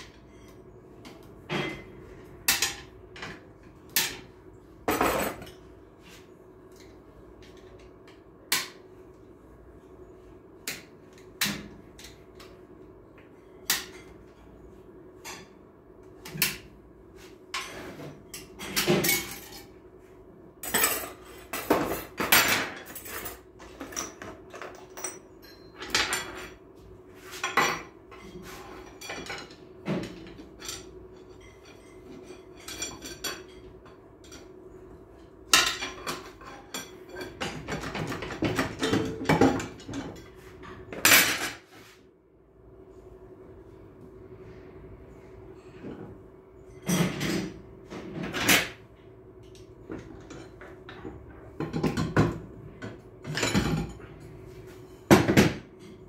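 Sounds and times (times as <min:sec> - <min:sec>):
metal parts clinking and clanking: 0:20.6 - 0:26.5.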